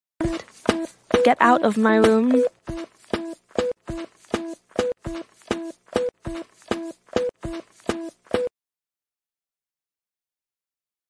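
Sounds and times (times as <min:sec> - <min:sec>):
looping electronic synth beat: 0:00.2 - 0:08.5.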